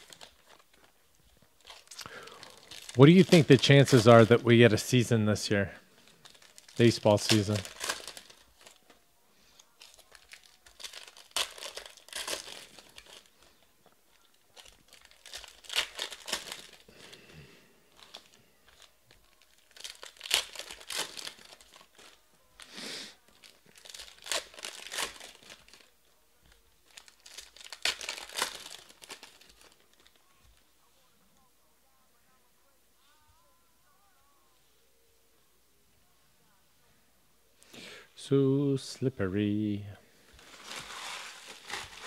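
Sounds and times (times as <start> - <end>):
foil wrappers crinkling and tearing: 0.0 - 30.6, 40.2 - 42.0.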